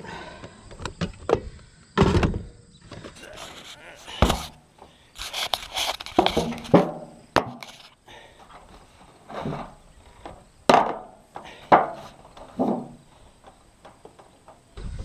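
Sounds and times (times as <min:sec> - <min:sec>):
heavy thuds on steel roofing: 0:09.3 - 0:14.7
knocks on wooden ladder: 0:10.7 - 0:13.0.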